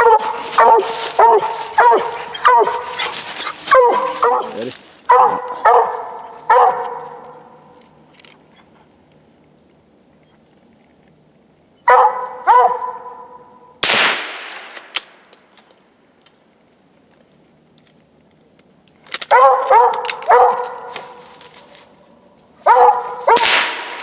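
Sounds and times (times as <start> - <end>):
dog barking: 0.0 - 7.6, 11.8 - 13.6, 19.3 - 21.2, 22.6 - 23.5
loud sharp crack: 13.8 - 15.7, 23.3 - 24.0.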